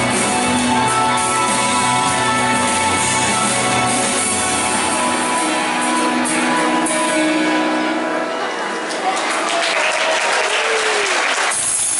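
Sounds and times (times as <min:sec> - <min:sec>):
music over stadium loudspeakers: 0:00.0 - 0:09.5, 0:11.2 - 0:11.9
crowd cheering and applauding: 0:08.1 - 0:11.9.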